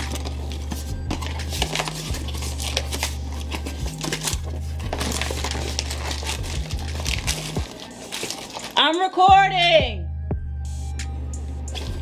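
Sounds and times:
cardboard box rustling and clicking: 0.0s - 8.8s
music with deep bass: 9.2s - 12.0s.

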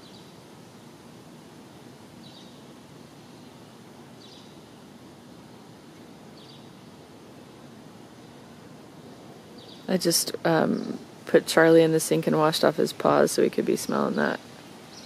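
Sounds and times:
low outdoor background noise: 0.0s - 15.0s
bird chirping: 4.2s - 4.6s, 9.6s - 9.9s.

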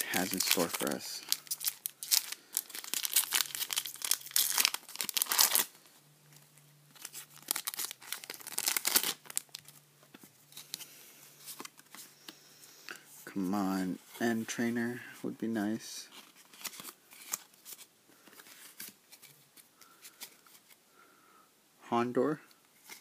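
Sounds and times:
foil wrapper tearing and crinkling: 0.0s - 5.7s, 6.9s - 9.7s.

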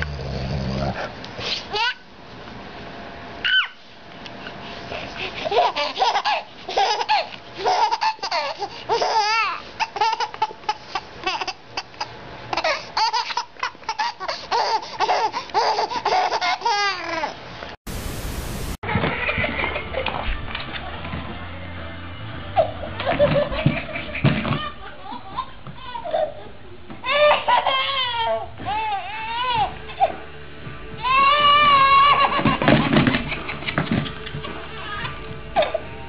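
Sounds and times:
baby laughing: 1.7s - 2.0s, 5.2s - 17.4s, 18.9s - 20.2s, 22.6s - 30.2s, 31.8s - 35.9s
static hiss: 17.9s - 18.8s.

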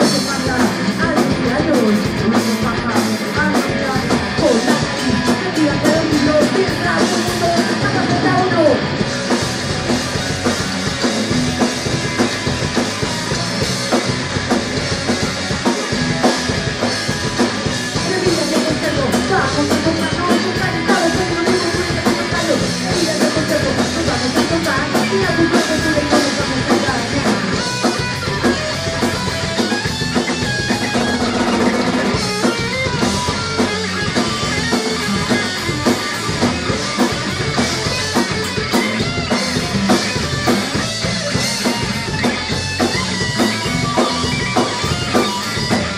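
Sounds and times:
woman singing: 0.0s - 8.8s, 18.0s - 27.6s
fast drumming: 0.0s - 45.9s
punk rock band playing: 0.0s - 45.9s.

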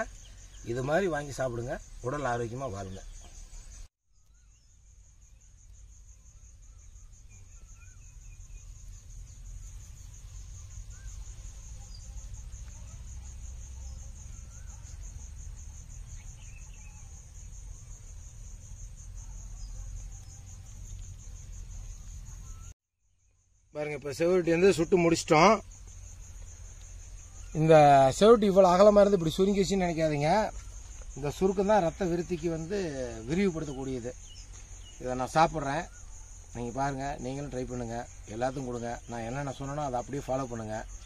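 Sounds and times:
crickets chirring: 0.0s - 41.0s
faint chirps: 0.0s - 41.0s.

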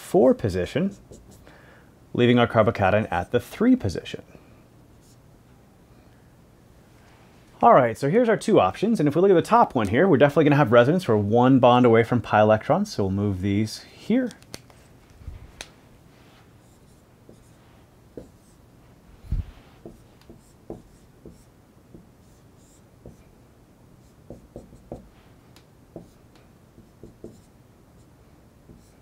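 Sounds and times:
marker scratching on whiteboard: 0.8s - 1.4s, 16.3s - 18.6s, 19.3s - 23.3s, 24.0s - 26.2s, 26.8s - 29.0s.

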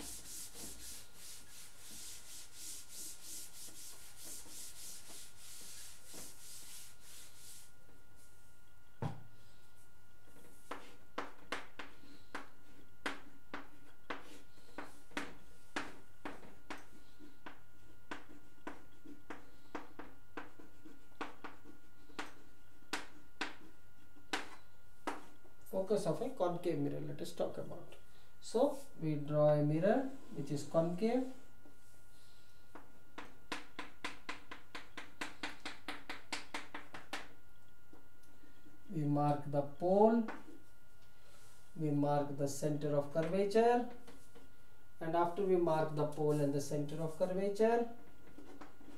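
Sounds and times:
chalk tapping on blackboard: 0.0s - 7.6s, 10.6s - 25.4s, 32.7s - 37.4s.

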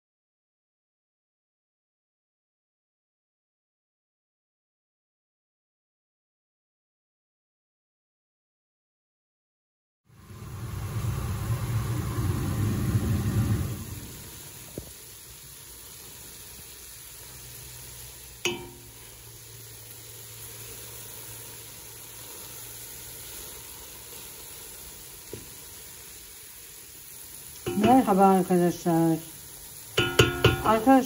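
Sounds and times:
low rumble: 10.1s - 14.8s
vegetables sizzling in a pot: 10.1s - 31.0s
spoon knocking against pot: 18.4s - 18.9s, 27.6s - 28.1s, 30.0s - 30.9s
wooden spoon stirring: 30.0s - 30.8s.

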